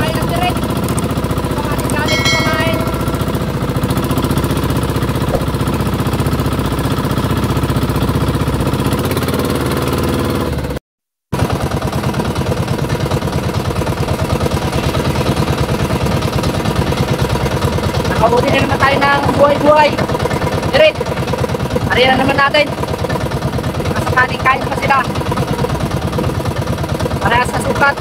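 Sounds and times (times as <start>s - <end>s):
boat engine chugging: 11.8s - 28.0s.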